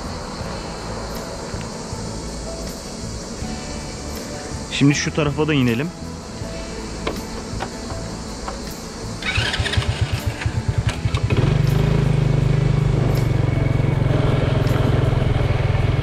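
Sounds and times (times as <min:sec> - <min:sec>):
motorcycle engine starting: 0:07.3 - 0:16.0.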